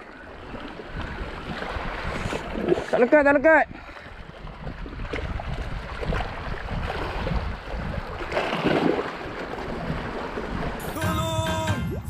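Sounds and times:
small waves splashing on rocks: 0:00.0 - 0:10.8
wind buffeting microphone: 0:00.4 - 0:10.8.

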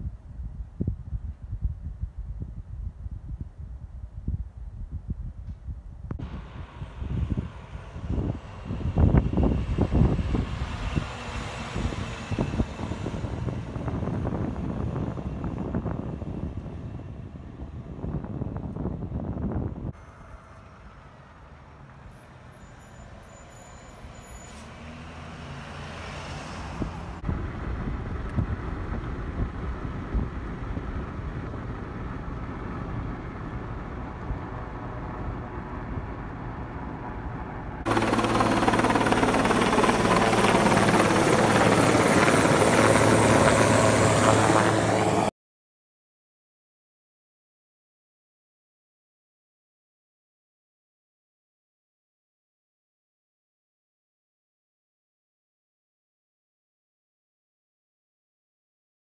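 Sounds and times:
vehicle road noise: 0:06.1 - 0:45.3
helicopter flying low overhead: 0:06.2 - 0:45.3.

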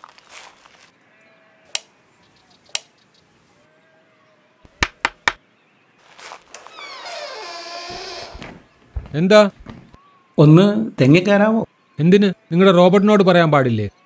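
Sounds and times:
knocking on wooden door: 0:04.8 - 0:05.4, 0:07.9 - 0:10.0.

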